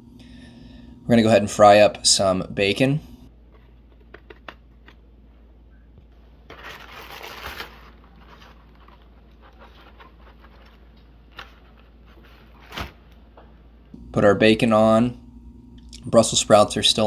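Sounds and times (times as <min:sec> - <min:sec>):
rustling: 0:06.1 - 0:13.2.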